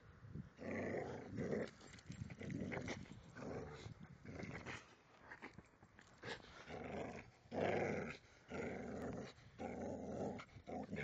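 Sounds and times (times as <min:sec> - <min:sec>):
dog growling in play: 0:00.6 - 0:04.9, 0:06.6 - 0:11.0.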